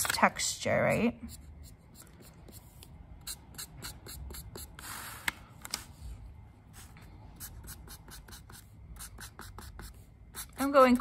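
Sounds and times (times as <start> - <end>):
marker strokes on paper: 0.9 - 5.3, 6.7 - 11.0.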